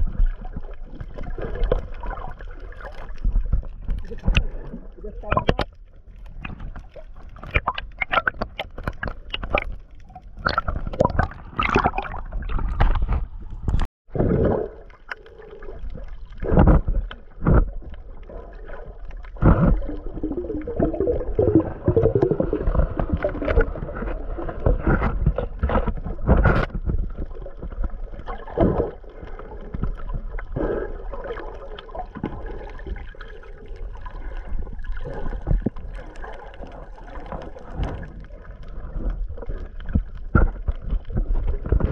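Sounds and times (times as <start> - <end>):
knocks and splashes against camera: 0.0 - 14.6, 16.4 - 18.2, 19.2 - 28.9, 35.0 - 41.9
water sloshing and gurgling: 0.0 - 41.9.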